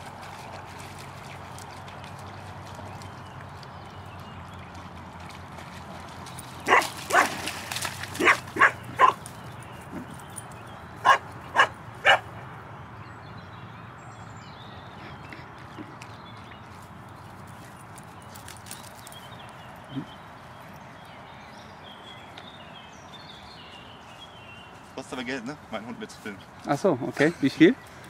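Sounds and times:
dog barking sharply: 8.2s - 9.2s, 11.0s - 12.3s.

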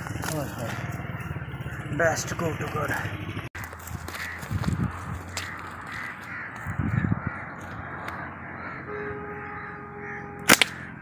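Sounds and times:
birds calling: 0.0s - 11.0s
steady held tone: 8.8s - 11.0s
slingshot rubber bands snapping: 10.4s - 10.8s.

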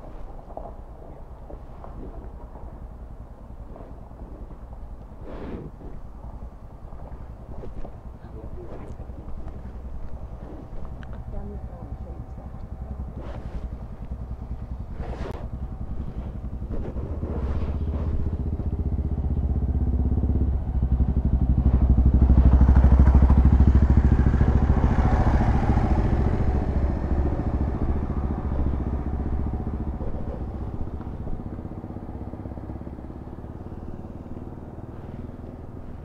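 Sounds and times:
motorcycle engines pulling away: 0.0s - 36.0s.

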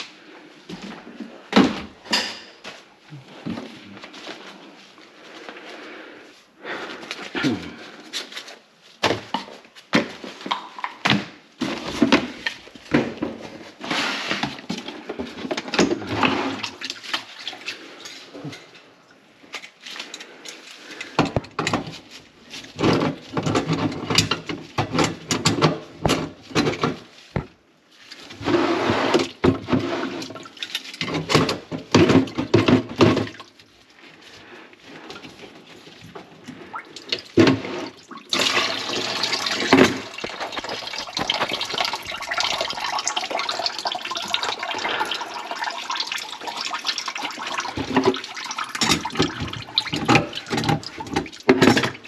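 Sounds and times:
water gurgling in sink: 15.7s - 18.7s, 28.4s - 33.6s, 36.4s - 52.0s.

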